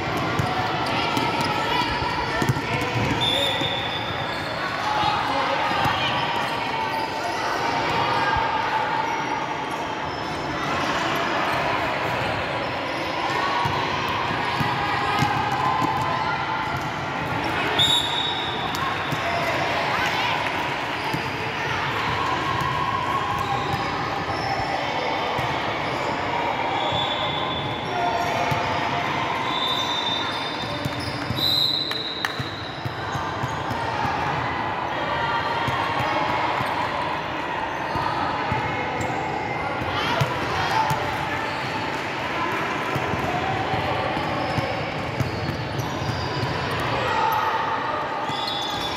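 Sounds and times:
basketball bouncing on hall floor: 0:00.0 - 0:04.2, 0:42.9 - 0:46.9.

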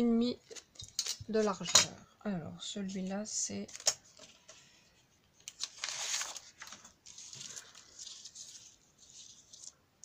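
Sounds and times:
paper and card rustling: 0:02.9 - 0:09.8.

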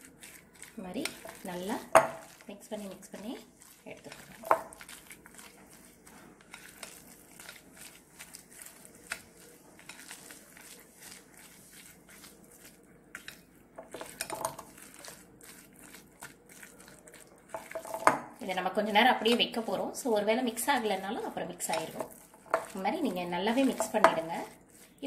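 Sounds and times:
spatula scraping glass bowl: 0:00.1 - 0:25.0.

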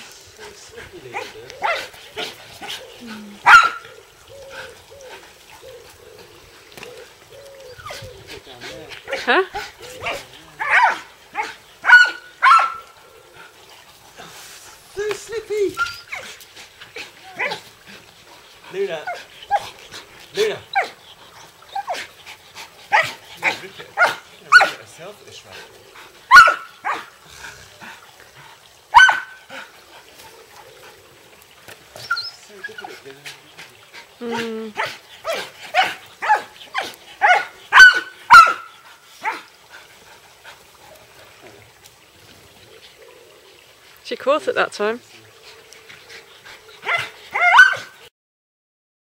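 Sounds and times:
dog barking: 0:01.1 - 0:02.8, 0:03.4 - 0:03.8, 0:10.0 - 0:12.9, 0:17.4 - 0:17.6, 0:22.9 - 0:24.8, 0:26.3 - 0:27.1, 0:28.9 - 0:29.4, 0:34.8 - 0:39.5, 0:46.8 - 0:48.0.

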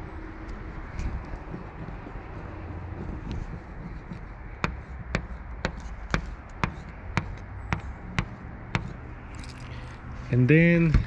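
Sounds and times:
key scraping on film: 0:09.3 - 0:10.0.

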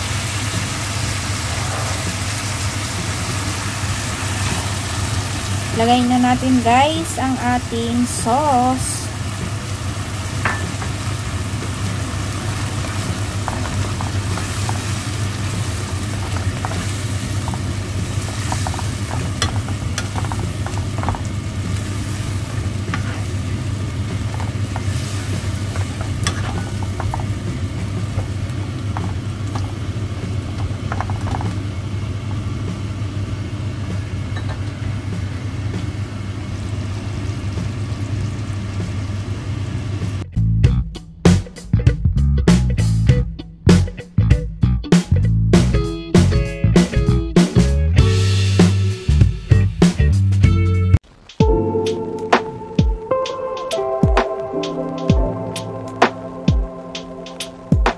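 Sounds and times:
chicken sizzling in sauce: 0:00.0 - 0:40.3, 0:48.0 - 0:50.3
spatula scraping pan: 0:22.9 - 0:23.3.

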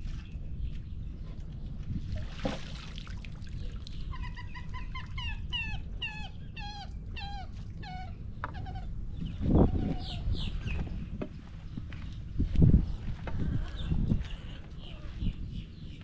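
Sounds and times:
animal yelping calls: 0:04.1 - 0:09.0.

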